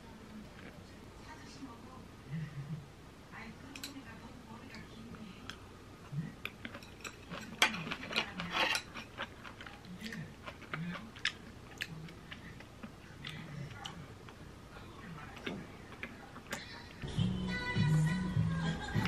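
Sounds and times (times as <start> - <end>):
chewing: 0.4 - 0.9, 4.7 - 17.0.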